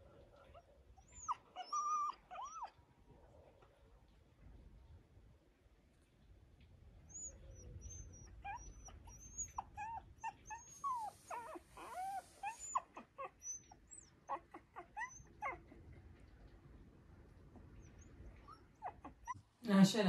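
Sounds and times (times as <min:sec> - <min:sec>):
small dog whimpering: 0:00.5 - 0:02.8, 0:07.1 - 0:15.8, 0:17.8 - 0:19.4.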